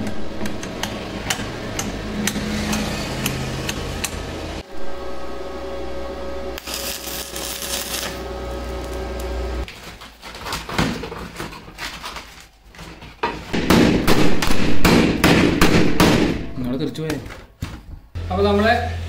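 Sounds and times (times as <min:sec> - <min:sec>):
welding machine hum: 0:06.2 - 0:09.7
arc welding crackling hiss: 0:06.6 - 0:09.5.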